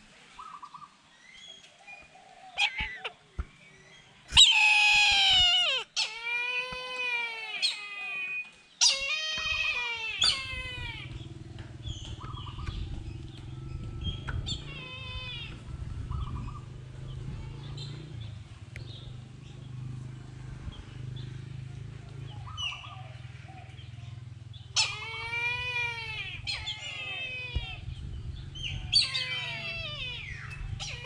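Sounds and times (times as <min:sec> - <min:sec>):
bird of prey mewing calls: 0:02.5 - 0:03.2, 0:04.3 - 0:16.7, 0:24.7 - 0:31.0.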